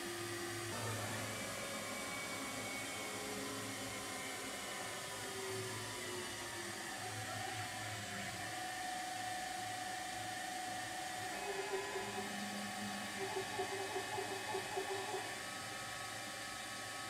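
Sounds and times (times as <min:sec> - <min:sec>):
lathe whirring: 0:00.0 - 0:17.0.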